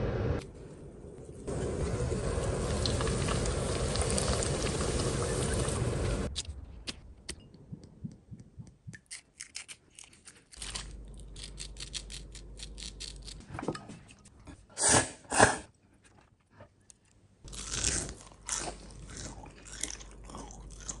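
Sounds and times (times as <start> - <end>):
crunching and chewing food: 17.4 - 21.0.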